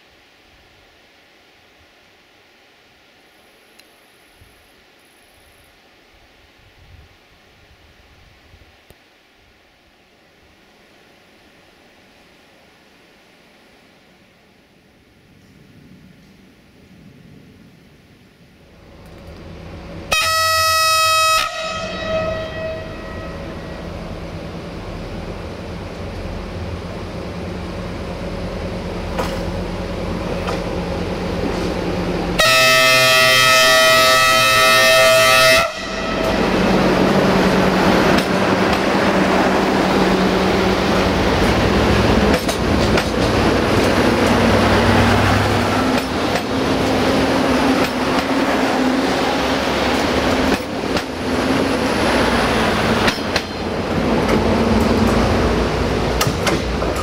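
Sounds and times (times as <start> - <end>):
rush of passing train: 2.8 - 57.0
train diesel engine: 9.8 - 57.0
train multi-tone horn: 20.0 - 24.2, 32.3 - 37.7.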